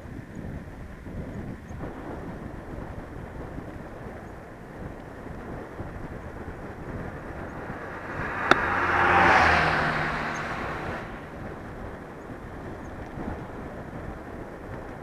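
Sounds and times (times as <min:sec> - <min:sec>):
wind noise: 0:00.0 - 0:15.0
motor vehicle passing by: 0:05.8 - 0:13.0.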